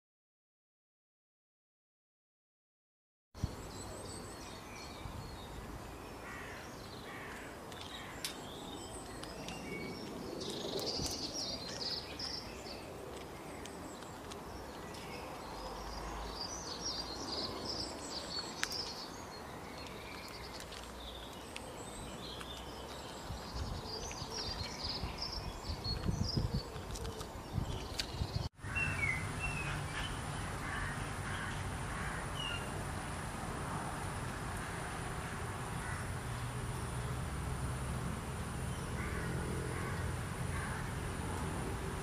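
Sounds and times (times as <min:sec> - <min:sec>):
small birds chirping: 0:03.4 - 0:32.8.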